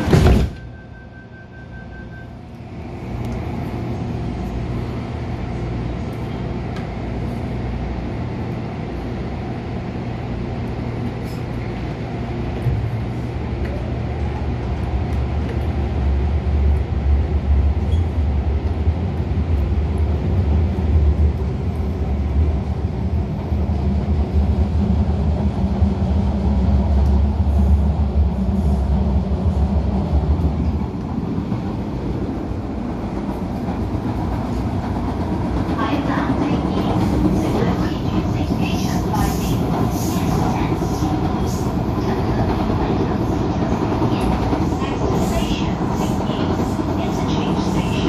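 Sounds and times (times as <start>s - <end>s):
train knock starting off: 0.0s - 0.7s
train interior hum: 0.0s - 48.0s
train rumble accelerating: 0.0s - 48.0s.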